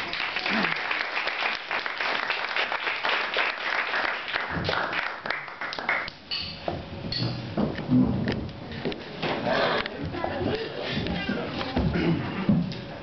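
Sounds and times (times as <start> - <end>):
people applauding: 0.0 - 6.1.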